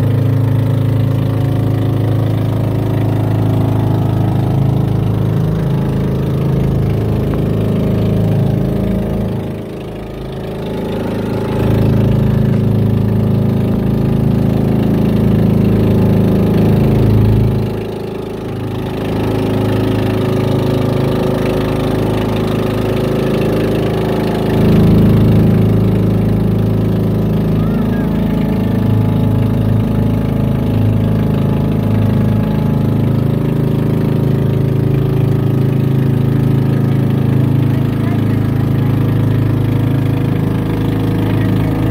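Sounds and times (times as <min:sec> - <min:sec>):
boat engine running: 0:00.0 - 0:41.9.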